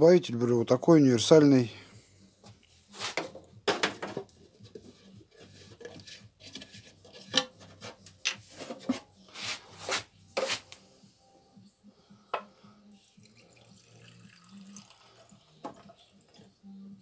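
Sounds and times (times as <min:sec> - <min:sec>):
containers knocking on workbench: 0:03.2 - 0:04.3.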